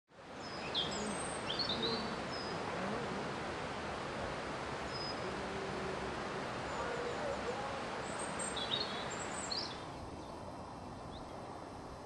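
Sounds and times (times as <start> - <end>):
background hiss: 0.1 - 12.0
birds chirping: 0.3 - 11.6.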